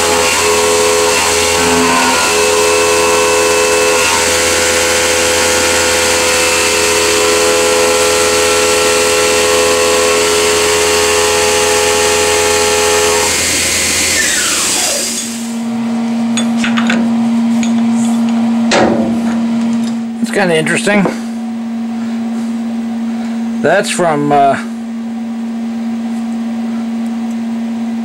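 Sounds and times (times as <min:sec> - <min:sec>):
milling machine spindle whine: 0:00.0 - 0:16.6.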